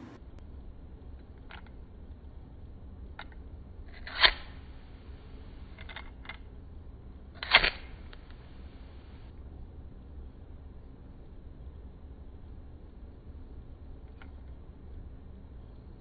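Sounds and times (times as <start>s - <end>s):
small clicks: 1.2s - 1.8s, 5.6s - 6.4s
lighter flint wheel strikes: 4.0s - 4.7s, 7.4s - 8.4s.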